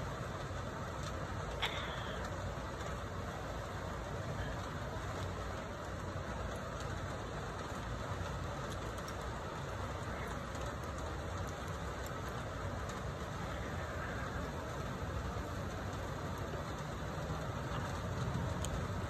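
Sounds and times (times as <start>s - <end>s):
constant hum and hiss: 0.0s - 19.0s.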